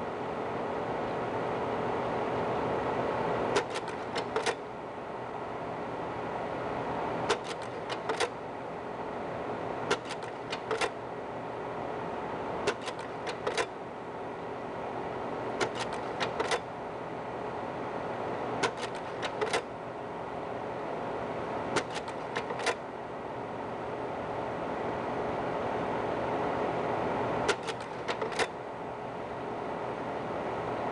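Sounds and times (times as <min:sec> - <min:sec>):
projector fan humming: 0:00.0 - 0:30.9
slide mechanism clicks: 0:03.5 - 0:04.6, 0:07.3 - 0:08.4, 0:09.9 - 0:11.0, 0:12.6 - 0:13.7, 0:15.6 - 0:16.7, 0:18.6 - 0:19.7, 0:21.8 - 0:22.8, 0:27.5 - 0:28.6.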